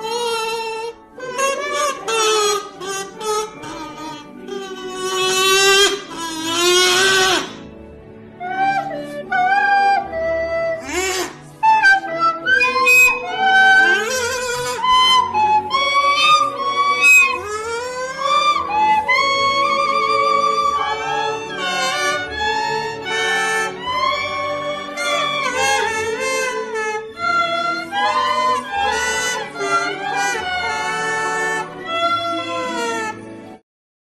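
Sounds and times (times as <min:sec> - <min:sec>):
music with sliding wavering melody: 0:00.0 - 0:33.6.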